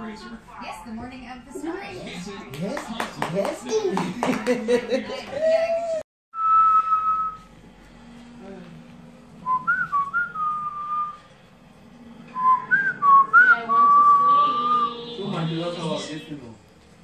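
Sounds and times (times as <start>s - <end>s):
person whistling: 6.4s - 7.5s, 9.4s - 11.2s.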